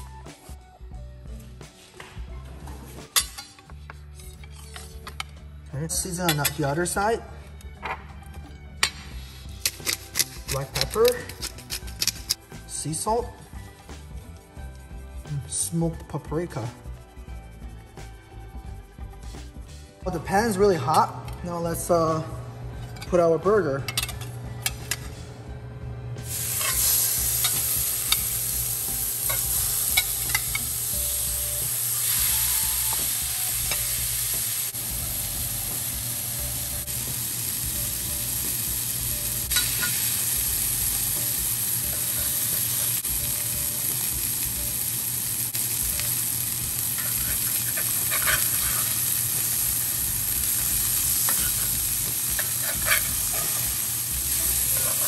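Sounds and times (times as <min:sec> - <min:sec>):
spatula clicks and scrape: 0:09.6 - 0:12.4, 0:47.0 - 0:49.1, 0:52.3 - 0:53.7
meat sizzling in a skillet: 0:26.2 - 0:55.0.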